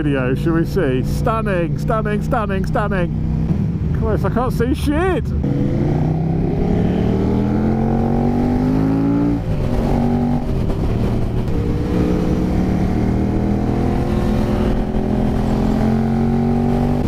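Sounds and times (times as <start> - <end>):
motorcycle engine accelerating: 5.3 - 17.0.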